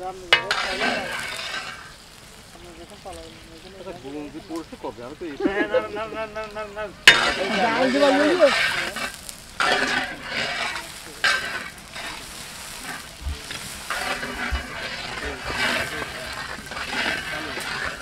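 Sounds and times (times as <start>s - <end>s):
metal spatula scraping pan: 0.0s - 2.0s, 7.0s - 18.0s
vegetables sizzling in oil: 0.0s - 18.0s.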